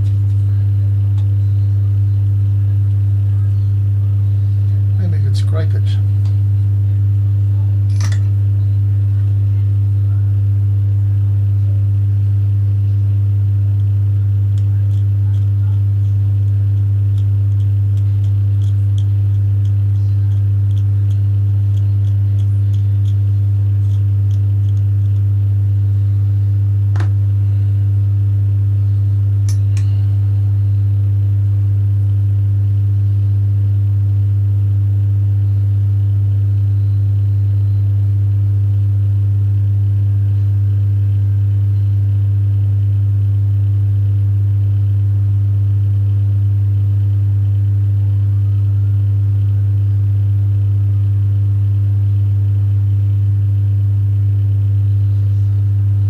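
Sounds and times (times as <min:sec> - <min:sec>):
low electrical hum: 0:00.0 - 0:56.0
sharp click: 0:07.9 - 0:08.3.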